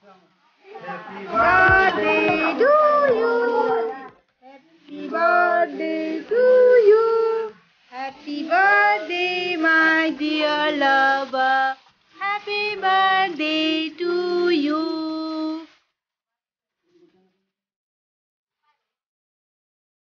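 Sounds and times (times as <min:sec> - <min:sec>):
child and woman singing: 0:00.6 - 0:15.8.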